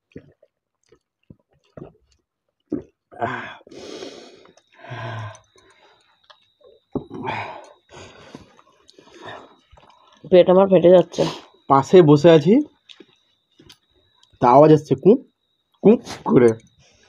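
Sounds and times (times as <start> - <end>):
gulping swallows: 0.0 - 10.3
mouth clicks: 0.0 - 10.3
person eating grunts: 2.7 - 5.5, 7.0 - 8.1.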